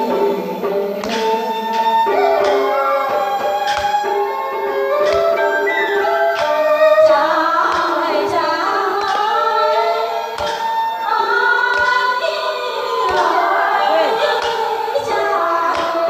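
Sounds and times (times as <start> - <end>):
instrumental accompaniment: 0.0 - 16.0
woman singing into microphone: 0.0 - 16.0
sharp percussive taps: 1.0 - 9.5, 10.4 - 10.8.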